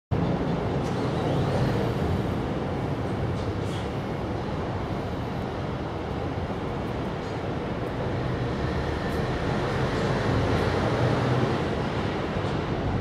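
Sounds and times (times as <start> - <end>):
road traffic rumble: 0.2 - 13.0.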